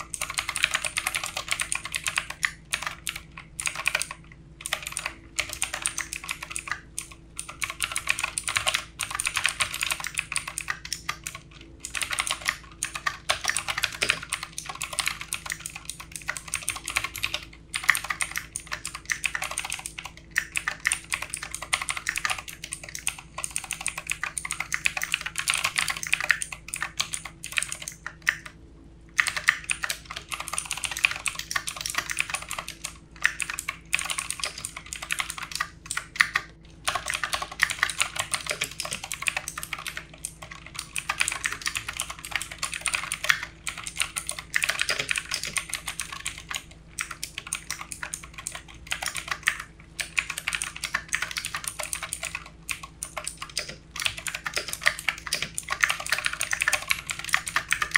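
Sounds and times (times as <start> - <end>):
fast typing on keyboard: 0.0 - 28.5, 29.1 - 57.9.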